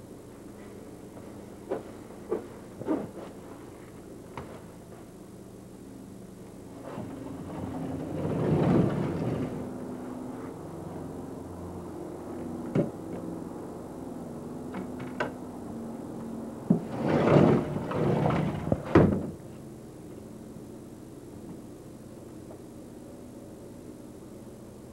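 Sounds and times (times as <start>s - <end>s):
sliding glass door rolling: 6.8s - 10.5s, 16.7s - 19.4s.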